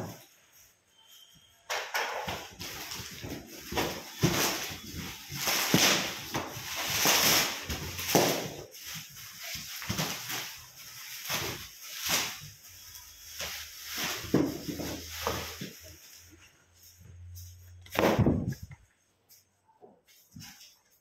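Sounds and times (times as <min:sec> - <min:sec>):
plastic packaging crinkling: 0:02.2 - 0:18.8.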